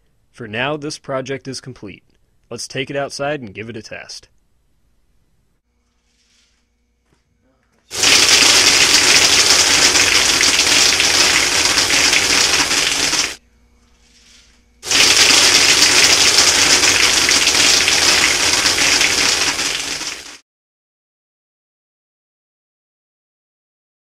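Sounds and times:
pellets rattling through barrel: 0:07.9 - 0:13.4, 0:14.8 - 0:20.3.

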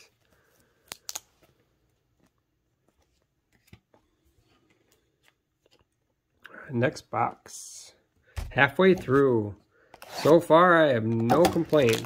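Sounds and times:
plastic sleeve rustling: 0:10.0 - 0:12.0.

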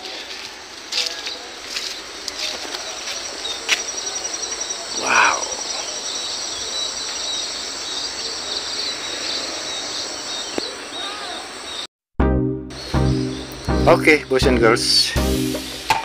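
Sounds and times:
birds chirping: 0:00.0 - 0:11.9, 0:12.7 - 0:16.0
insects trilling: 0:01.2 - 0:11.9
man saying wow: 0:05.0 - 0:05.7.

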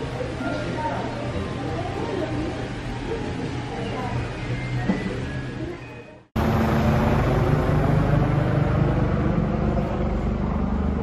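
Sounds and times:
city traffic rumble: 0:06.2 - 0:11.0.

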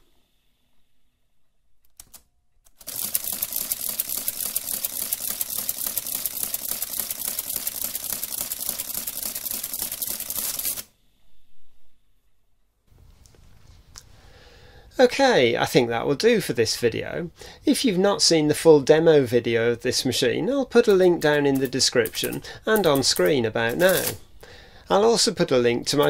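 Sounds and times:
adding machine clattering: 0:20.8 - 0:24.2.

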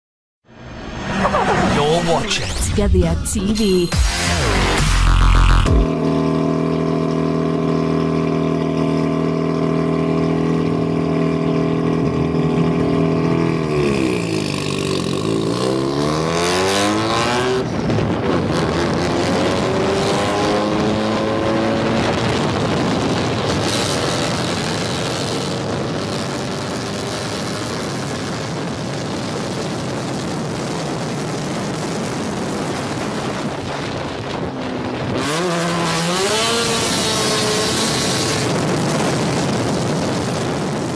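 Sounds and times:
loud noisy rush of sliding car: 0:00.5 - 0:02.7
car engine revving: 0:00.5 - 0:02.8, 0:03.9 - 0:40.9.

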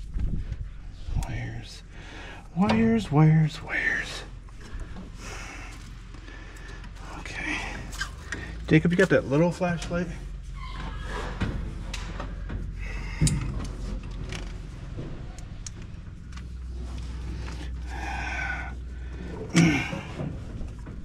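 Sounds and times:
low steady hum: 0:00.0 - 0:21.0
handling knocks and clunks: 0:07.6 - 0:17.9, 0:19.1 - 0:21.0.

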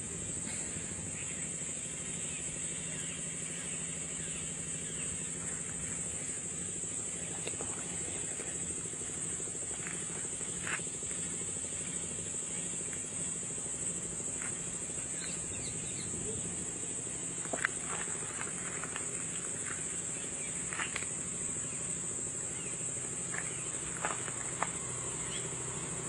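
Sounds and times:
insect chorus: 0:00.0 - 0:26.0
low idling engine hum: 0:00.0 - 0:26.0
bird chirps: 0:25.1 - 0:25.7.

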